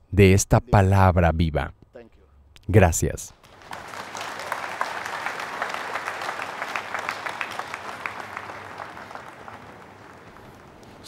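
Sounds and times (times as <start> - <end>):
congregation clapping: 3.4 - 11.0.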